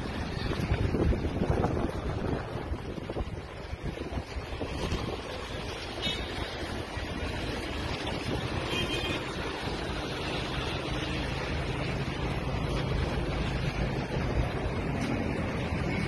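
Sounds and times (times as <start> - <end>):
wind on microphone: 0.0 - 9.6.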